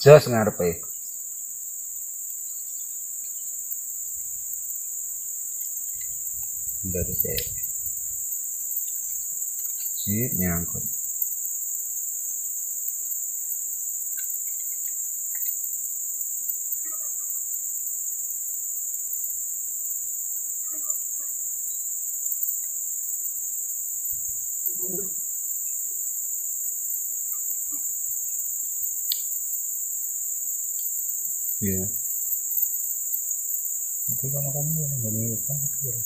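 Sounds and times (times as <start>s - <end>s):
insect chorus droning: 0.0s - 36.0s
faint bird chirps: 5.6s - 11.1s, 16.7s - 17.6s, 20.5s - 22.8s, 27.2s - 29.4s.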